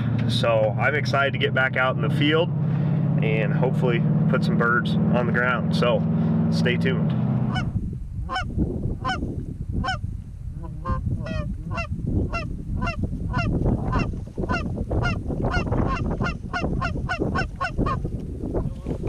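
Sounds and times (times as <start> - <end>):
low wind rumble: 0.0 - 19.0
goose honking: 7.5 - 7.7, 8.3 - 9.2, 10.6 - 18.0.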